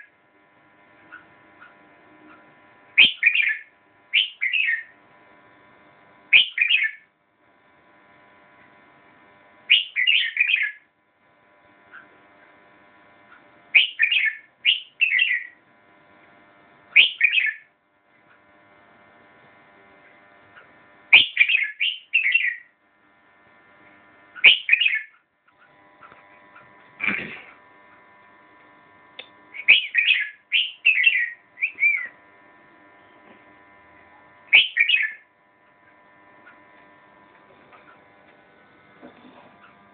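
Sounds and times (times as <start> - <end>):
faint steady hum: 0.0 - 39.9
bird singing whistled phrases: 3.0 - 4.9, 6.3 - 7.0, 9.7 - 10.8, 13.8 - 15.6, 17.0 - 17.7, 21.2 - 22.7, 24.4 - 25.2, 29.6 - 32.1, 34.5 - 35.2.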